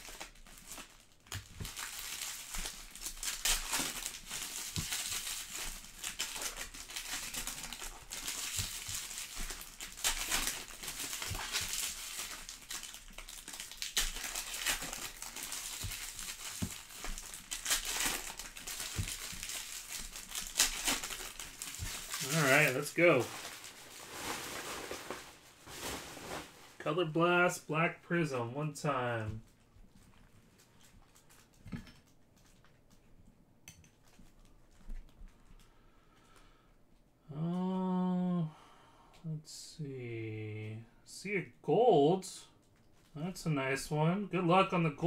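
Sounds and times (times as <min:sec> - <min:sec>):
foil wrappers crinkling: 0:00.0 - 0:26.8, 0:29.4 - 0:32.7.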